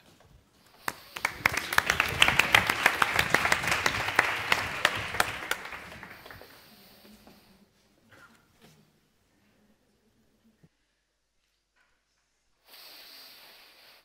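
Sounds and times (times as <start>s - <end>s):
audience applauding: 0.9s - 6.7s.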